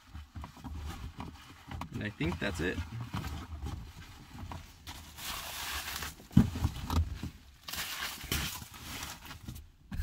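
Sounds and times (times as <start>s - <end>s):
bubble wrap crinkling: 4.8s - 6.8s, 7.5s - 9.4s.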